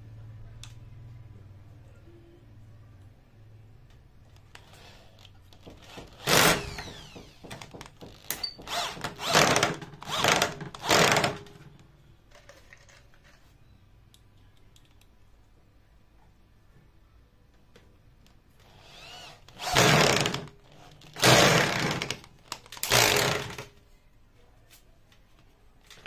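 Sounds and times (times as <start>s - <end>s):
cordless drill boring into wood: 5.8s - 11.4s, 18.6s - 20.5s, 21.2s - 22.2s, 22.8s - 23.6s.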